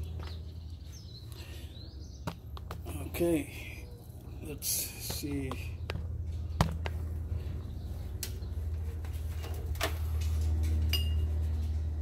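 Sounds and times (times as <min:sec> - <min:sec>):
steady low hum: 0:00.0 - 0:12.0
metallic clink: 0:10.9 - 0:11.3.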